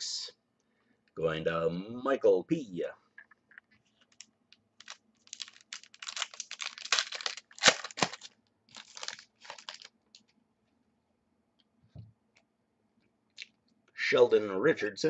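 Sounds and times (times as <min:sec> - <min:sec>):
trading cards shuffling: 0:03.2 - 0:10.3.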